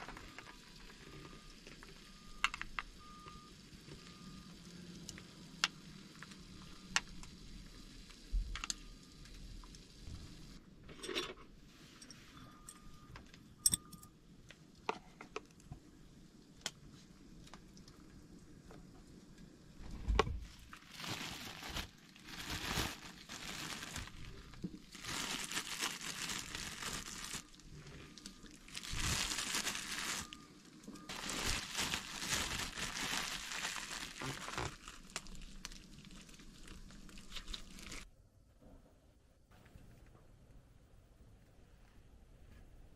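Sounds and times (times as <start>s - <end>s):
plastic bag crinkling: 20.4s - 30.4s, 31.0s - 38.1s.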